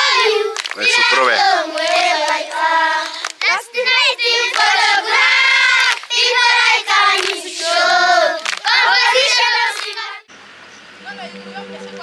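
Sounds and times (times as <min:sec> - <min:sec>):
children clapping hands: 0:00.0 - 0:03.6, 0:04.4 - 0:10.1
children singing in unison: 0:00.0 - 0:10.3.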